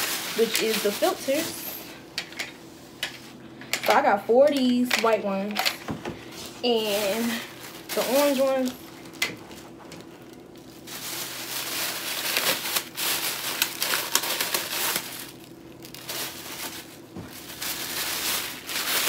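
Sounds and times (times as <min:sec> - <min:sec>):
plastic bag crinkling: 0:00.0 - 0:02.0, 0:06.2 - 0:19.0.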